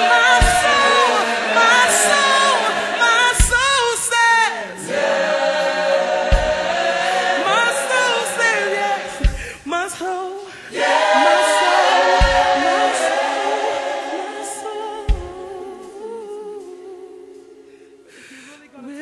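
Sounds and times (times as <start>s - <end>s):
gospel choir singing: 0.0s - 19.0s
deep low thump: 0.4s - 0.9s, 6.3s - 6.7s, 9.2s - 9.5s, 12.2s - 12.6s, 15.1s - 15.5s.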